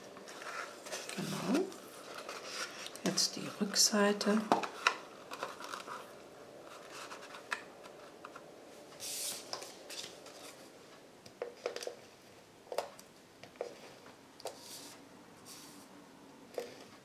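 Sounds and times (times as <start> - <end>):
paper rustling: 0.2 - 3.0, 4.7 - 8.2.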